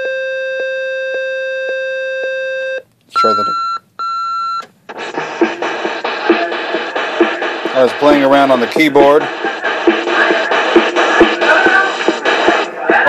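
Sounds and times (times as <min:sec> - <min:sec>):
short high beeps: 0:02.6 - 0:04.7
person speaking: 0:03.1 - 0:03.6, 0:07.6 - 0:09.3
music: 0:04.9 - 0:13.0.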